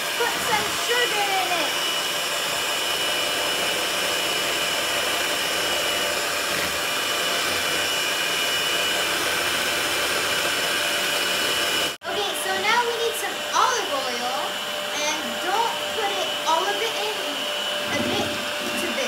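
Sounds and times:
electric hand mixer whirring: 0.0 - 19.0.

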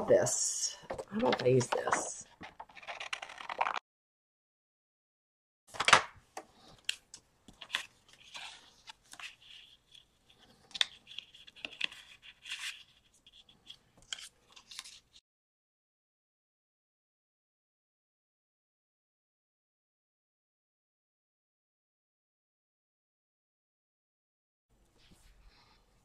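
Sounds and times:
paper rustling and crinkling: 0.9 - 3.8, 6.6 - 15.2.

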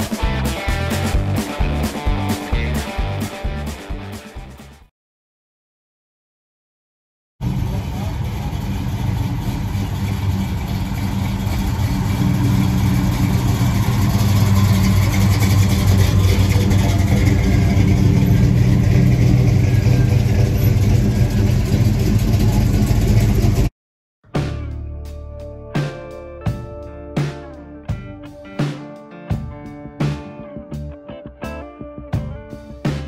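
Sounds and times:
car engine running: 7.4 - 23.7.

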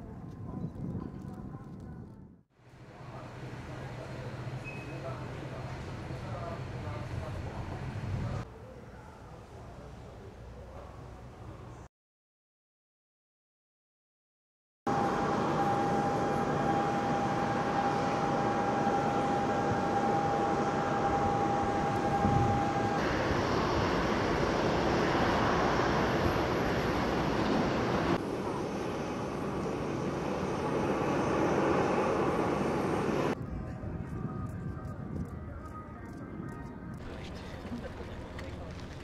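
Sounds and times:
high aircraft whine: 14.9 - 39.0.

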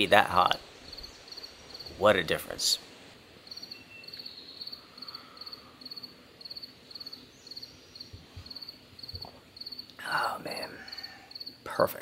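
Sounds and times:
cricket chirping: 0.6 - 2.0, 3.4 - 11.6.

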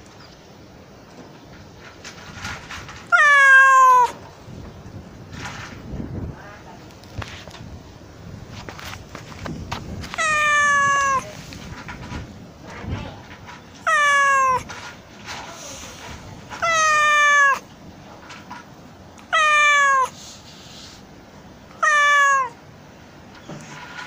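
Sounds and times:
kitten meowing: 3.1 - 4.2, 10.1 - 11.4, 13.8 - 14.8, 16.6 - 17.7, 19.2 - 20.2, 21.7 - 22.6.

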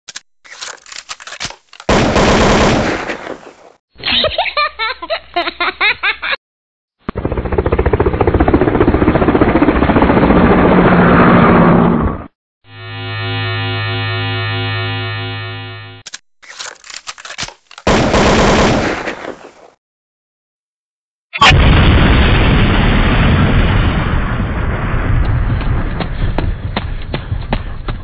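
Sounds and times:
machine-gun fire: 1.9 - 3.2, 17.9 - 19.2.

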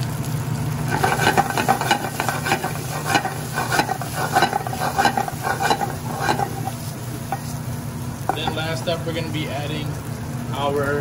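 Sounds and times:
pasta sizzling in a skillet: 0.0 - 10.8
steady low hum: 0.6 - 10.4
pasta and pan scraping and clattering: 0.9 - 8.8.

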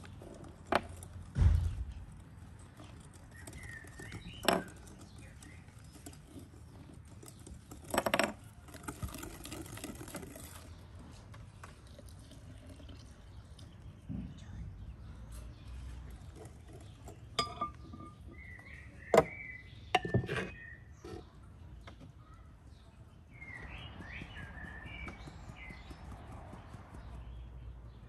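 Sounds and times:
low thump: 1.3 - 2.2
faint bird chirp: 3.2 - 6.3, 13.5 - 28.0.

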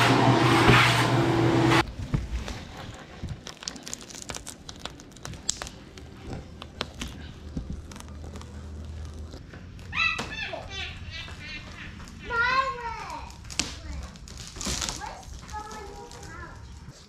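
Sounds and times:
rubber seal crinkling and crackling: 1.8 - 10.7, 11.3 - 17.0.

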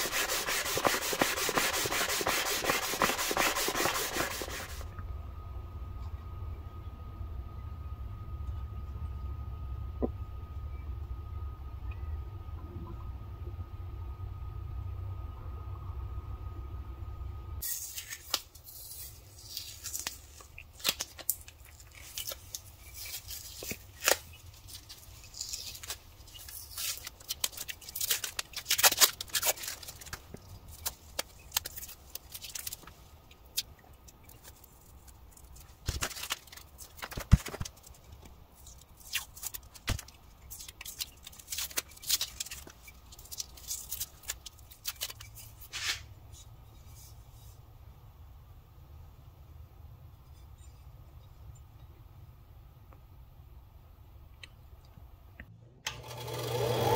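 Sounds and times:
masking tape peeling and ripping: 0.0 - 4.8, 17.6 - 46.1.

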